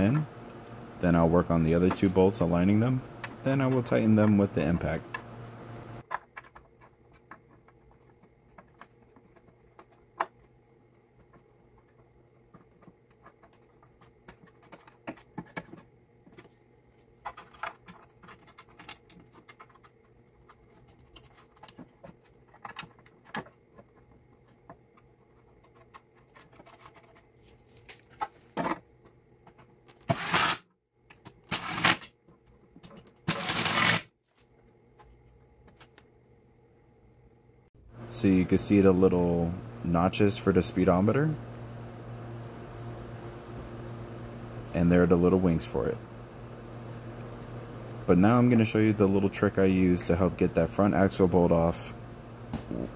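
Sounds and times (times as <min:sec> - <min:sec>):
impact wrench bursts: 0:30.1 - 0:30.6, 0:31.5 - 0:32.0, 0:33.3 - 0:34.0.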